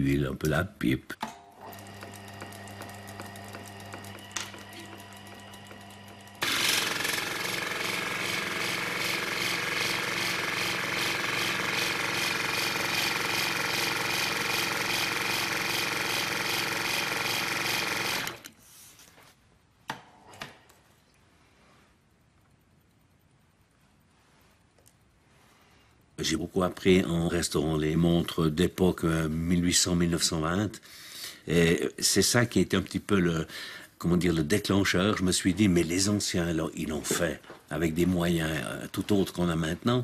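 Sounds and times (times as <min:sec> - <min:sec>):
electric motor hum: 0:01.6 - 0:18.5
loud mechanical whirr: 0:04.8 - 0:16.4.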